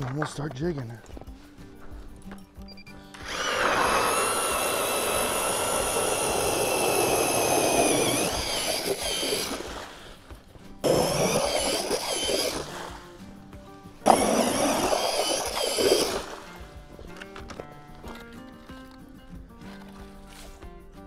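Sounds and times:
ice auger drilling through ice: 3.1 - 13.1, 14.0 - 18.4.

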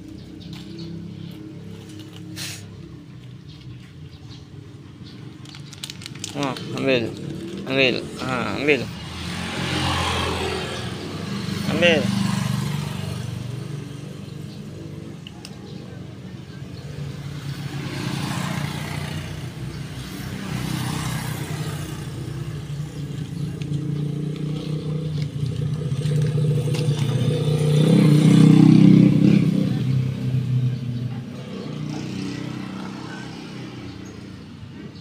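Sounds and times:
vehicle engine humming: 0.0 - 35.0.

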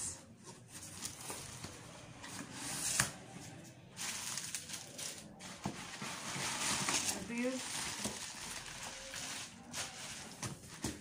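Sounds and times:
bubble wrap crinkling: 3.9 - 11.0.

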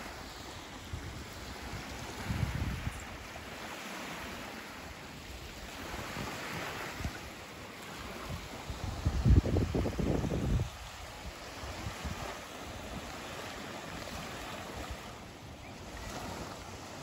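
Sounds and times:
small waves lapping on shore: 0.0 - 17.0
wind buffeting microphone: 0.8 - 3.2, 8.0 - 15.0.

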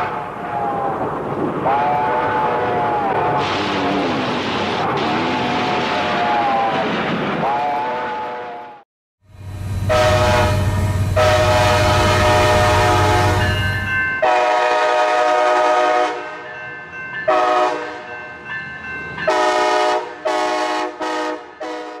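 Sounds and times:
locomotive horn blasts: 1.7 - 2.9, 7.5 - 8.8, 9.8 - 16.4, 17.3 - 18.0, 19.3 - 22.0.

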